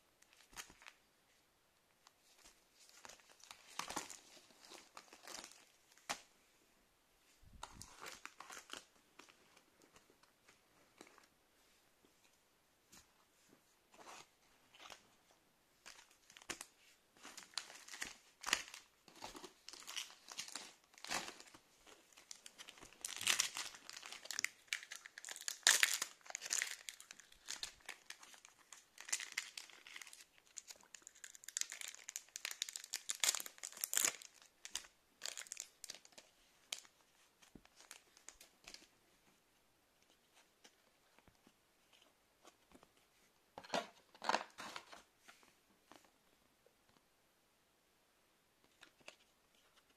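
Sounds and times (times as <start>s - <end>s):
foil wrapper crinkling and tearing: 22.3s - 36.9s.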